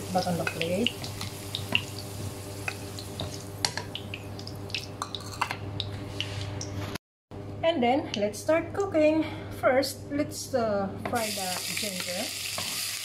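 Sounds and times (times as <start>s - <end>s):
oil sizzling in a frying pan: 0.0s - 4.8s, 11.2s - 13.0s.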